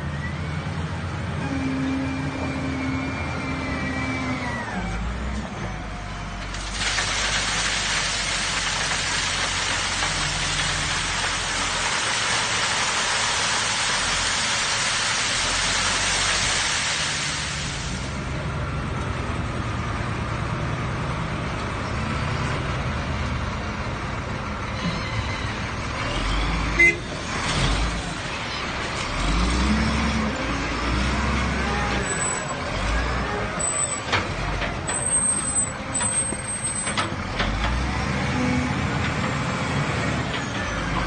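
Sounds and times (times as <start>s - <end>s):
gravel pouring and sliding: 6.5s - 18.2s.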